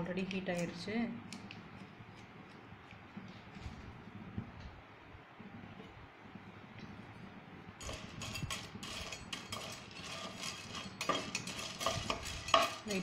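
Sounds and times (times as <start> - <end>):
spatula scraping a pan: 7.8 - 13.0.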